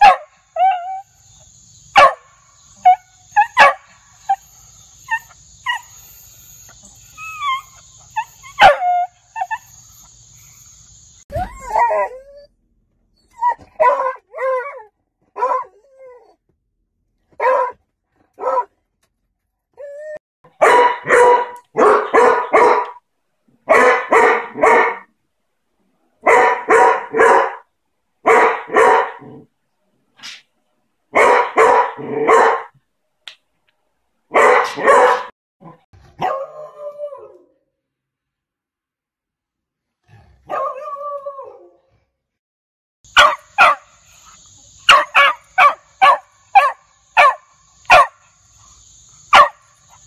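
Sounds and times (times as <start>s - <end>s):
dog barking: 0.0s - 0.4s, 2.0s - 2.3s, 2.9s - 3.9s, 8.5s - 9.0s, 13.8s - 14.6s, 15.4s - 15.7s, 17.4s - 17.8s, 18.4s - 18.7s, 20.6s - 23.0s, 23.6s - 25.1s, 26.2s - 27.6s, 28.2s - 29.4s, 31.1s - 32.8s, 34.3s - 35.3s, 36.2s - 36.6s, 40.5s - 40.9s, 43.1s - 43.9s, 44.9s - 48.3s, 49.3s - 50.0s.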